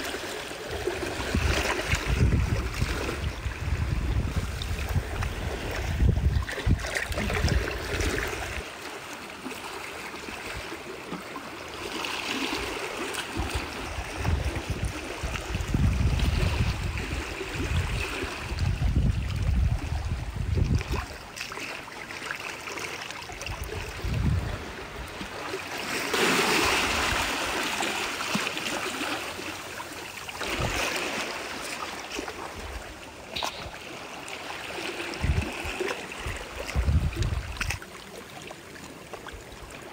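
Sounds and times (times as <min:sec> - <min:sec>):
seawater sloshing among rocks: 0:00.0 - 0:39.9
wind rumbling on microphone: 0:00.7 - 0:08.6, 0:13.4 - 0:21.3, 0:23.4 - 0:25.4, 0:30.4 - 0:31.0, 0:32.4 - 0:37.8.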